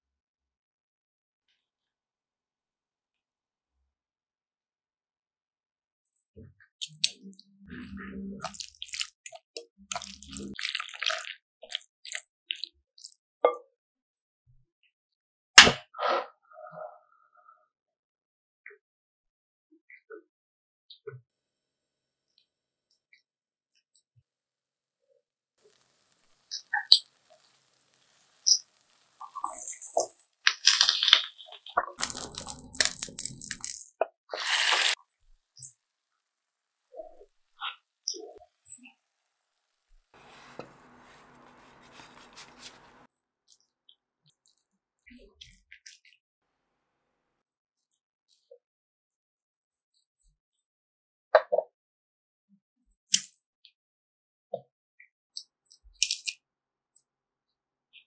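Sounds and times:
wet squishing: 0:08.4 - 0:13.2, 0:28.3 - 0:35.0
food sliding into pan: 0:34.4 - 0:35.0, 0:40.2 - 0:43.1
plate scraping frying pan: 0:40.2 - 0:43.1.

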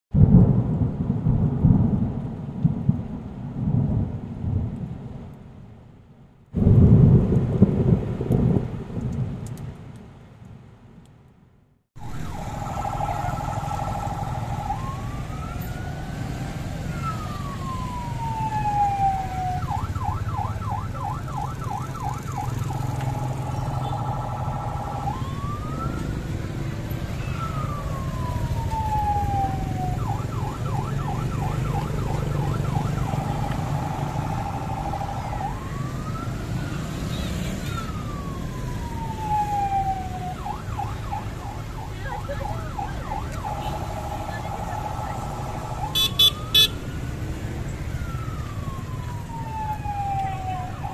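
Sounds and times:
electronic vehicle siren: 0:12.0 - 0:50.9
low rumble: 0:43.0 - 0:47.2.

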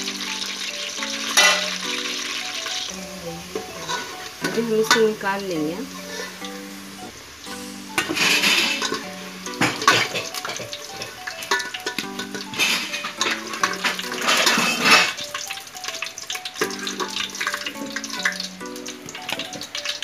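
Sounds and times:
background music: 0:00.0 - 0:20.0
hot oil sizzling: 0:00.0 - 0:20.0
metal spoon clinking on pot: 0:01.3 - 0:01.9, 0:03.6 - 0:05.2, 0:08.0 - 0:16.0.

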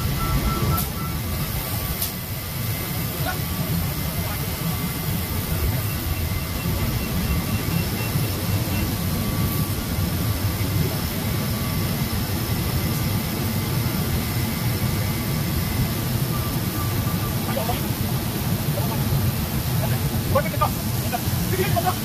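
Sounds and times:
faint high whining tones: 0:00.0 - 0:22.0
machinery drone: 0:00.0 - 0:22.0.

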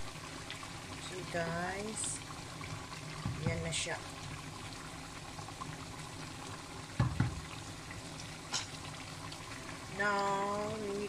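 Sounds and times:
stew bubbling in a pot: 0:00.0 - 0:11.0
dull knock: 0:03.2 - 0:03.7, 0:07.0 - 0:07.4.

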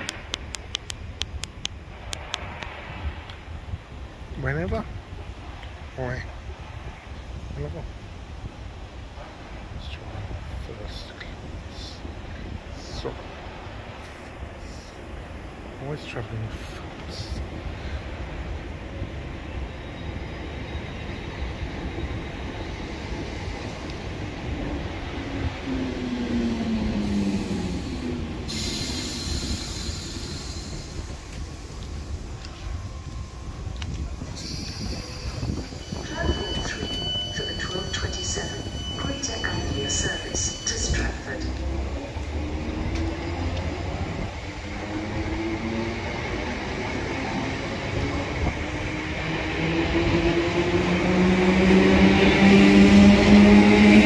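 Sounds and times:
rumble of train wheels: 0:00.0 - 0:54.0
train traction motor whine: 0:20.7 - 0:46.9
high wheel squeal: 0:34.2 - 0:41.3.

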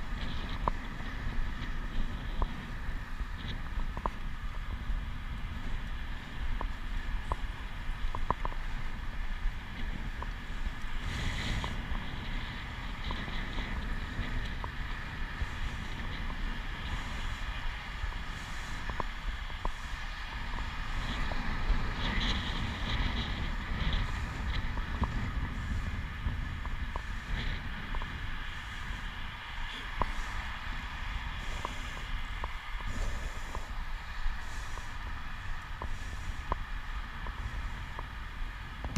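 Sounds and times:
low rumble of travel: 0:00.0 - 0:38.9
wind buffeting microphone: 0:00.0 - 0:38.9
faint ticks: 0:03.4 - 0:04.2, 0:05.8 - 0:08.9, 0:09.7 - 0:17.5, 0:18.3 - 0:21.3, 0:31.4 - 0:38.1.

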